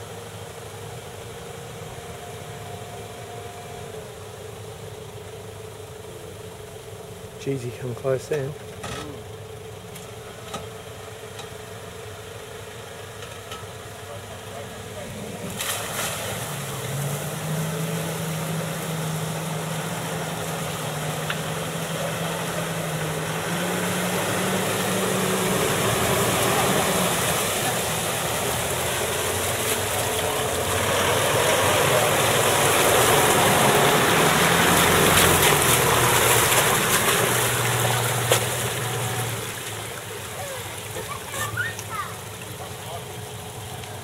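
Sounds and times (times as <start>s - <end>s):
car engine running at low revs: 0.0s - 44.0s
water churning and splashing: 14.3s - 44.0s.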